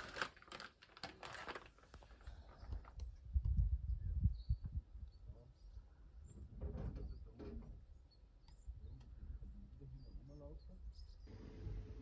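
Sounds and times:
wind rumble on microphone: 0:02.3 - 0:07.9.

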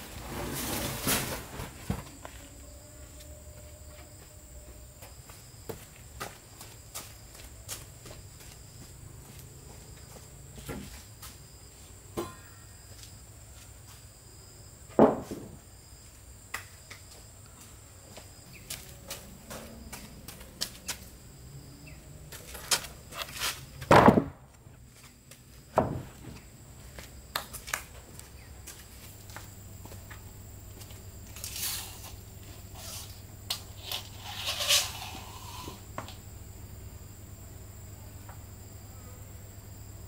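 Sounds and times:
wood knocks and thuds: 0:14.9 - 0:15.6, 0:23.8 - 0:24.6, 0:25.7 - 0:26.4.

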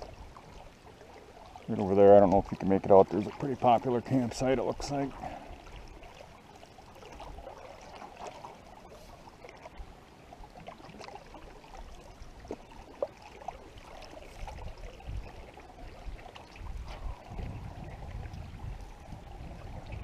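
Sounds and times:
paddle strokes in water: 0:00.0 - 0:20.0
small splashes and drips: 0:00.0 - 0:20.0
wind buffeting microphone: 0:14.3 - 0:20.0.

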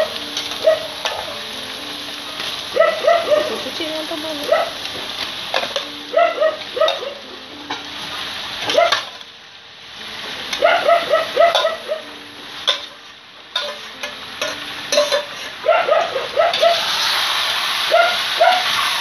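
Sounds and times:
meat sizzling in a wok: 0:00.0 - 0:19.0
dog yipping: 0:00.5 - 0:01.3, 0:02.7 - 0:03.6, 0:04.4 - 0:04.8, 0:06.1 - 0:07.2, 0:08.7 - 0:09.1, 0:10.6 - 0:12.1, 0:15.6 - 0:16.9, 0:17.8 - 0:18.9.

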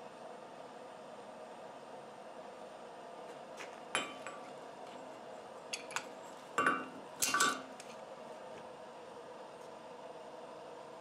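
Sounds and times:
steel tool clanking on anvil: 0:06.6 - 0:07.7.

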